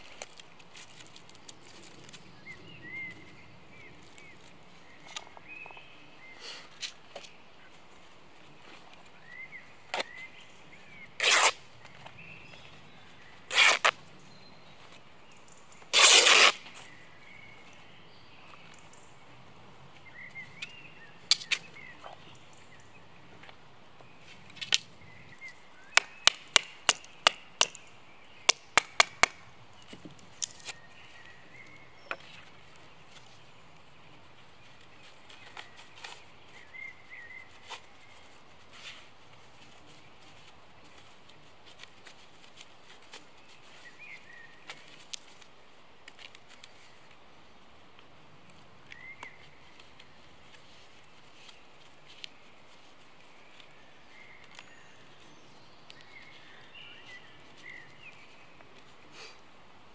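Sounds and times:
cloth ripping: 11.2s - 11.6s, 13.5s - 13.9s, 15.9s - 16.6s.

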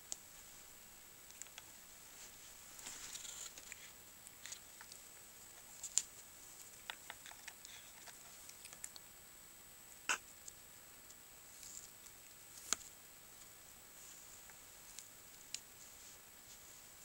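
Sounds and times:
cat chewing on stick: 3.2s - 9.1s.

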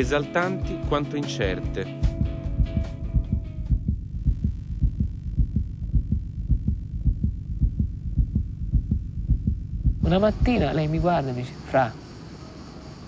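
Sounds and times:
heartbeat thumping: 1.6s - 10.8s.

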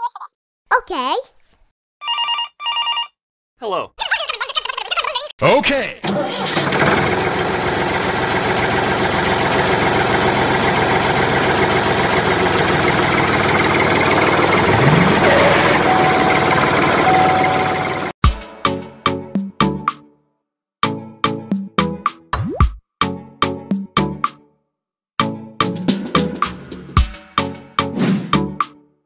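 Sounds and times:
tractor engine running: 6.0s - 18.2s.

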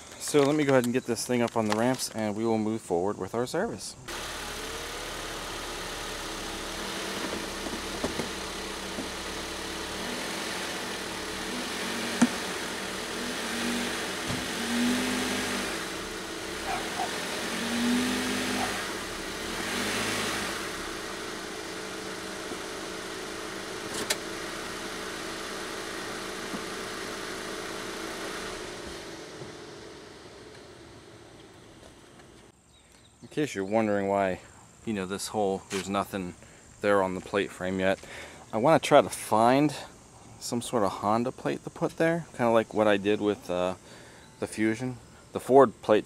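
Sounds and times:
car engine idling: 4.1s - 32.6s.

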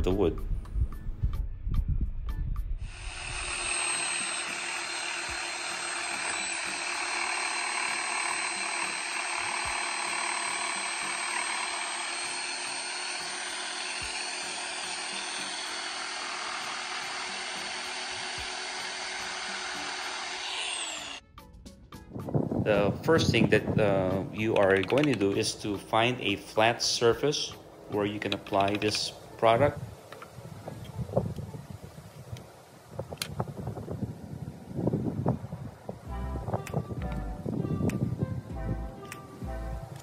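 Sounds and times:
reciprocating saw cutting wood: 2.8s - 21.2s.

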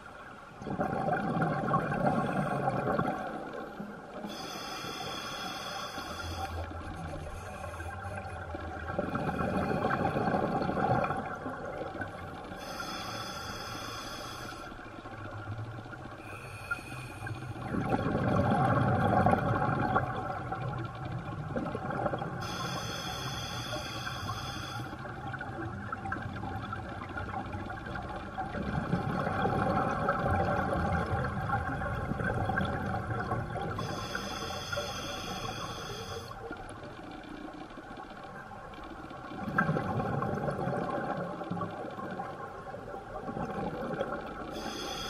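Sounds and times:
exhaled bubbles rushing: 0.6s - 3.5s, 17.6s - 22.4s, 28.5s - 33.8s, 39.3s - 42.2s
hissing inhale through regulator: 4.2s - 8.4s, 12.6s - 14.9s, 16.2s - 17.7s, 22.4s - 25.1s, 33.7s - 36.6s, 44.5s - 45.0s.

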